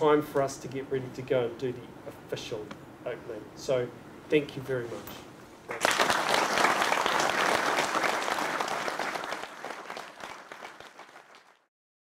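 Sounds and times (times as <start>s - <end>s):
audience applauding: 5.7s - 11.7s.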